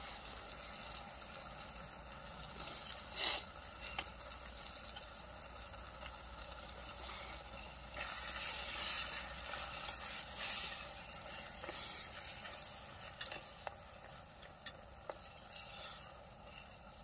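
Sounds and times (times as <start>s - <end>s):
food sizzling in a pot: 0.0s - 17.0s
gas stove hissing: 0.0s - 17.0s
utensils scraping pot: 2.5s - 4.1s, 6.8s - 17.0s.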